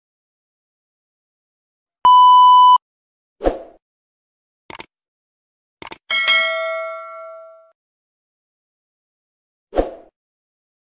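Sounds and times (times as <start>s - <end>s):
clicks: 4.7s - 4.9s, 5.8s - 6.0s
notification bell ding: 6.1s - 7.7s.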